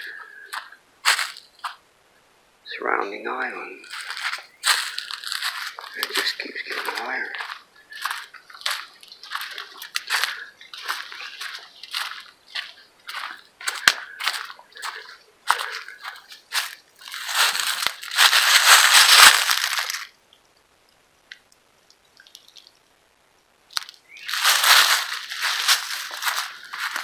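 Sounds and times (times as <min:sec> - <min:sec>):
footsteps crunching dry leaves: 0:00.0 - 0:01.8, 0:03.4 - 0:20.2, 0:23.7 - 0:27.0.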